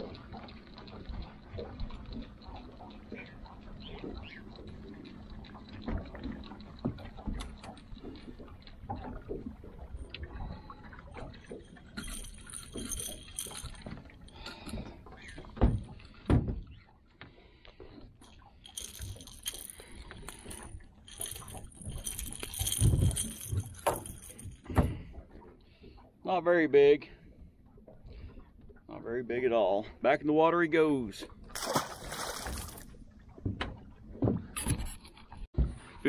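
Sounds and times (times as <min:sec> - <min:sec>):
water splashing and dripping: 0:00.0 - 0:26.0, 0:31.2 - 0:35.4
tackle clattering and knocking: 0:11.3 - 0:16.7, 0:18.7 - 0:25.1.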